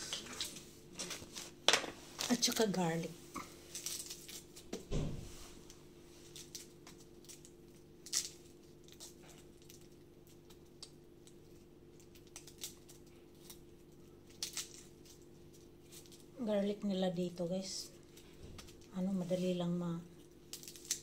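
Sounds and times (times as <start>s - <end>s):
steady low hum: 0.0s - 21.0s
garlic skin crackling: 3.4s - 4.8s, 6.3s - 16.4s, 17.6s - 21.0s.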